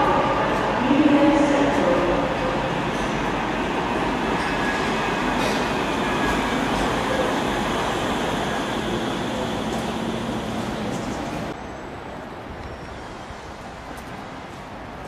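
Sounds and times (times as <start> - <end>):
tram wheels and motors running: 2.9 - 11.6.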